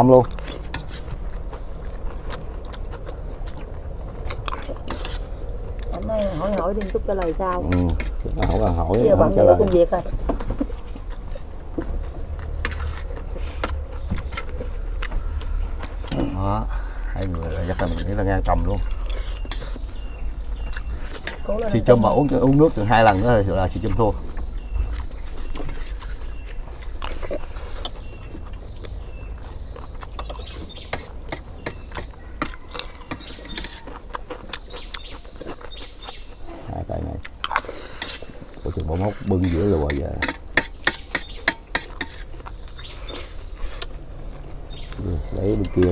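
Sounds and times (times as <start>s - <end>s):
high insect trill: 0.0s - 45.9s
metal spoons scraping on trays: 30.9s - 33.9s, 39.2s - 42.4s
metal spoons scraping metal trays: 39.4s - 42.3s.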